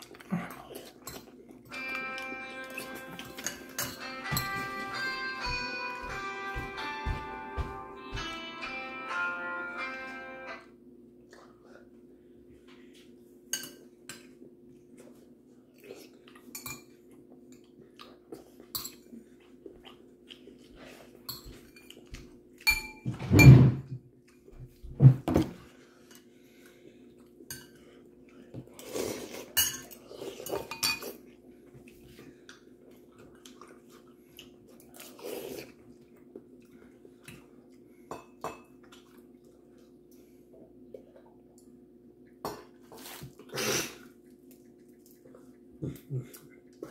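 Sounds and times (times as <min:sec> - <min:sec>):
spoon clinking on ceramic bowls: 0:01.1 - 0:05.4, 0:13.5 - 0:14.3, 0:29.6 - 0:31.2.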